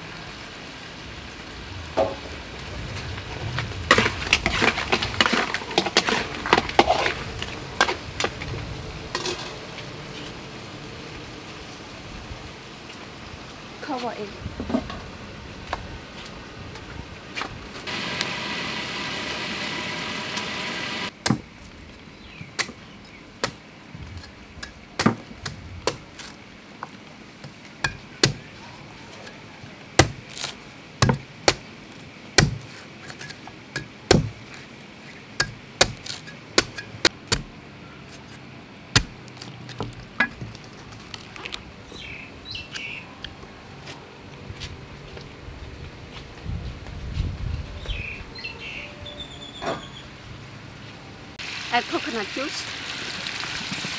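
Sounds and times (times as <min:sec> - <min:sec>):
cleaver chopping coconut: 0:21.2 - 0:21.5, 0:27.9 - 0:28.5, 0:30.0 - 0:31.6, 0:32.4 - 0:33.2, 0:33.8 - 0:34.4, 0:35.4 - 0:37.6, 0:39.0 - 0:39.9.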